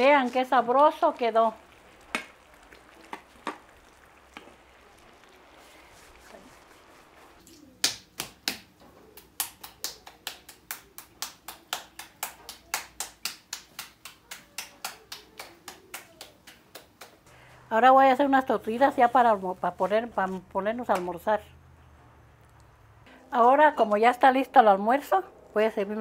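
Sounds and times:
hands slapping dough: 0:07.4 - 0:17.3.

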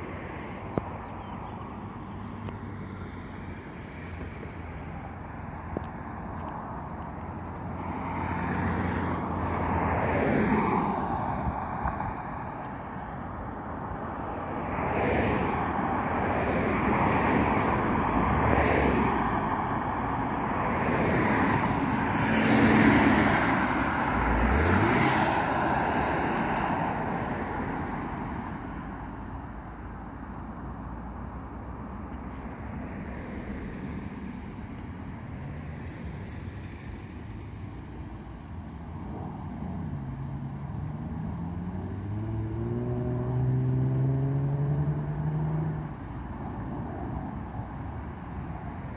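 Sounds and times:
cars driving past: 0:00.0 - 0:48.9
car engine speeding up: 0:22.2 - 0:25.8, 0:39.8 - 0:46.0.

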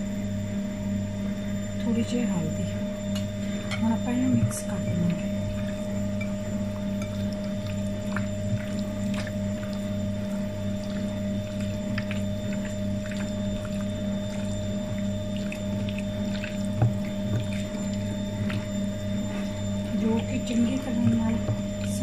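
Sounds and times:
electrical hum: 0:00.0 - 0:22.0
hands squelching raw chicken: 0:06.5 - 0:22.0.

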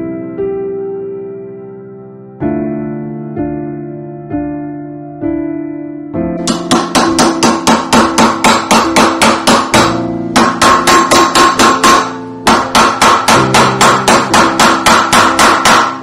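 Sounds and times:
background music: 0:00.0 - 0:16.0
mallet striking metal ring: 0:06.4 - 0:16.0.

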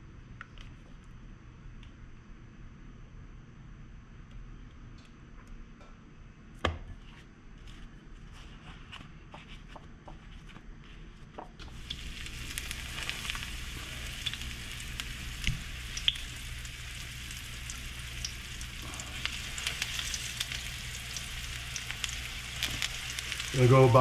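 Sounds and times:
fish sizzling in hot oil: 0:11.6 - 0:24.0.

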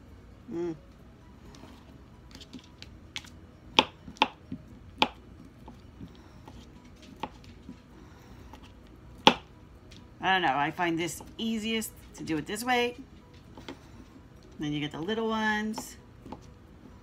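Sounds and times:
knife chopping on plastic board: 0:03.2 - 0:04.4, 0:05.0 - 0:05.8, 0:07.2 - 0:07.4, 0:09.2 - 0:09.5.

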